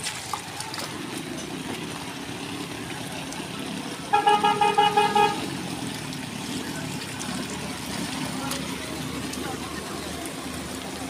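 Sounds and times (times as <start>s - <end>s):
auto-rickshaw engine running: 0.0s - 11.0s
vehicle horn short beeps: 4.1s - 5.4s.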